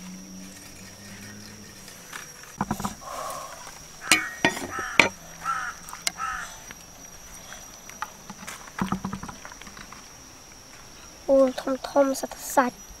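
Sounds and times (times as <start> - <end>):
steady high-pitched whine: 0.0 - 13.0
crow calling: 3.0 - 6.6
sharp knocks: 4.1 - 5.2, 8.8 - 9.4.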